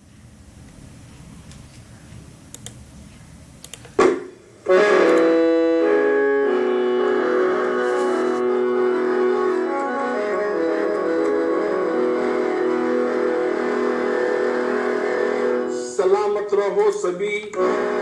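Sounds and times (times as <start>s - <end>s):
light clicks: 3.6s - 3.9s
loud knock: 4.0s - 4.4s
electronic keyboard chords: 4.6s - 16.2s, 17.6s - 18.0s.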